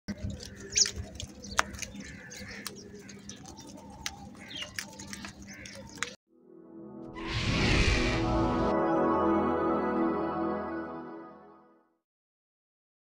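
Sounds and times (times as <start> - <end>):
beaks pecking on concrete: 0.1 - 6.2
crows calling: 0.1 - 6.2.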